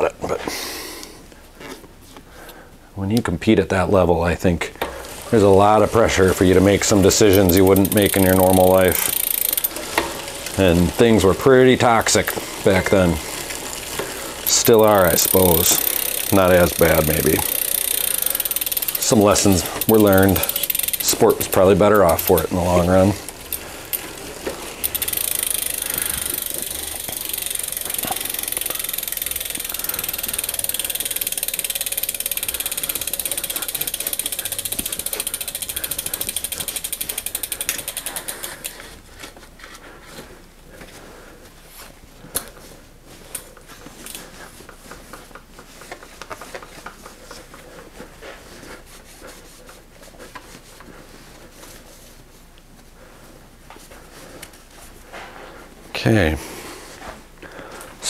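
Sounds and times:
bicycle chain over cassette: 4.8 - 38.9
rag rubbing on chain: 5.1 - 38.7
fast ticking freehub: 5.2 - 38.8.

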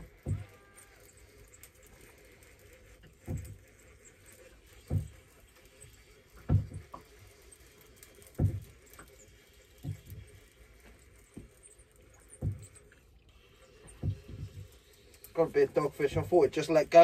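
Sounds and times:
fishing reel ticking: 0.0 - 17.0
water slapping against boat hull: 13.9 - 14.7.

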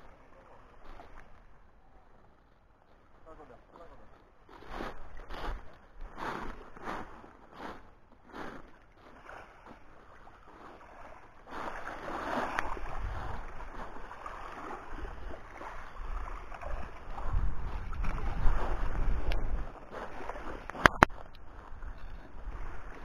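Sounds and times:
waves washing over pebbles: 4.5 - 23.0
wind rumbling on microphone: 12.2 - 23.0.

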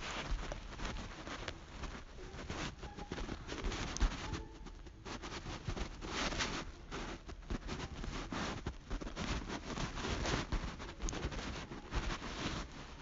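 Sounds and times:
rustling: 0.0 - 13.0
fingertips tapping touchscreen: 2.2 - 7.7.

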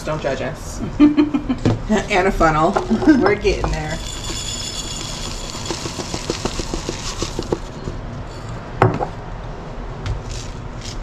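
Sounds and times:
oats pouring into glass jar: 3.9 - 7.9.

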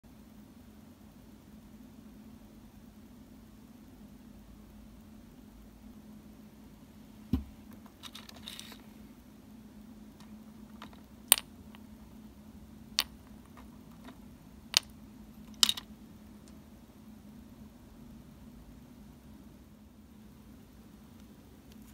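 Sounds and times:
soft knock: 7.3 - 7.6
light clicks of toys set down: 7.8 - 8.8
brief rustle: 8.0 - 8.9.

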